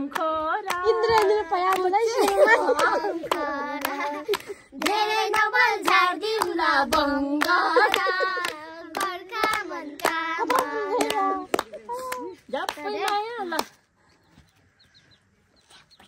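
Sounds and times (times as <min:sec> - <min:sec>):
girls singing together: 0:00.0 - 0:13.2
hand claps: 0:00.0 - 0:13.8.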